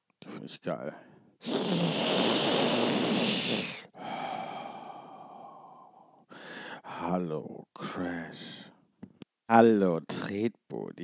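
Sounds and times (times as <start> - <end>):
e-cigarette drag hiss: 1.4 - 3.9
long exhale: 1.4 - 6.8.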